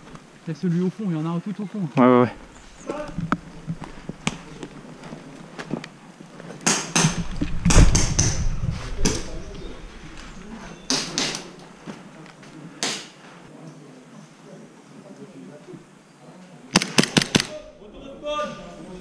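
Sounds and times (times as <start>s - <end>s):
sharp clacks and knocks: 6.6s - 9.2s, 10.9s - 11.5s
heavy low thud: 7.0s - 9.5s.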